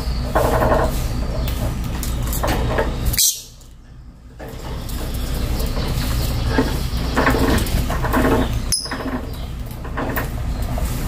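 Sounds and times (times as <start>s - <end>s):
lovebirds chattering: 0.0s - 11.0s
birds rustling in cage: 4.3s - 11.0s.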